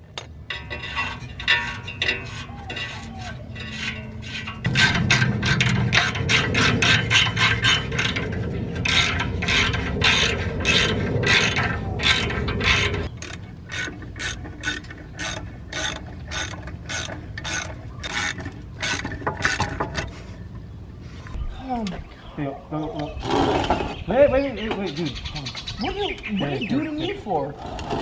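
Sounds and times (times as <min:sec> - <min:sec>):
low steady rumble: 0:03.6 - 0:18.8.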